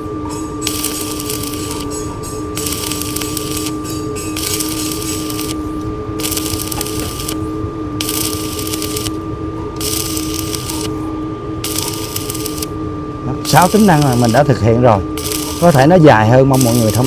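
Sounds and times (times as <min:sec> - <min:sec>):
steady hum: 0:00.0 - 0:17.0
thin high whine: 0:00.0 - 0:17.0
welding arc crackling: 0:00.6 - 0:02.0, 0:02.6 - 0:03.8, 0:04.4 - 0:09.2, 0:09.8 - 0:11.0, 0:11.6 - 0:12.7, 0:13.4 - 0:14.6, 0:15.2 - 0:17.0.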